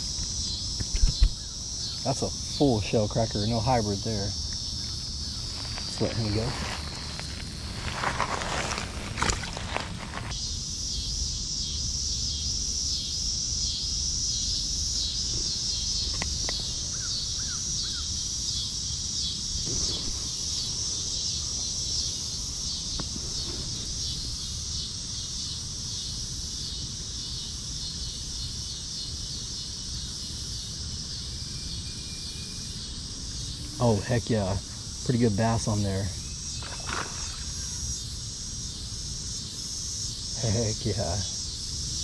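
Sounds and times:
crickets droning: 0.0 - 42.0.

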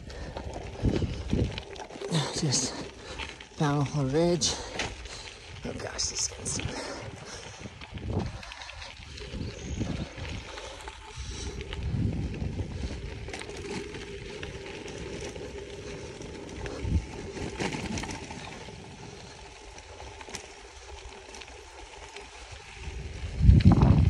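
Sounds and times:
bicycle tyres crunching on dirt: 0.0 - 24.0.

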